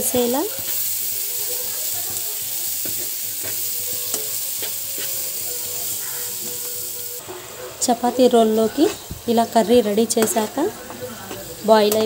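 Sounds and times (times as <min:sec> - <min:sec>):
vegetables sizzling in a frying pan: 0:00.0 - 0:12.0
spatula tapping and scraping pan: 0:02.0 - 0:05.2, 0:09.8 - 0:12.0.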